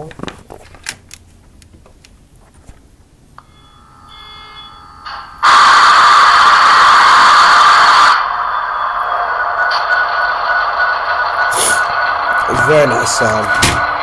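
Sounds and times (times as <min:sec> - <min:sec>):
faint steady tones: 0:03.3 - 0:05.5.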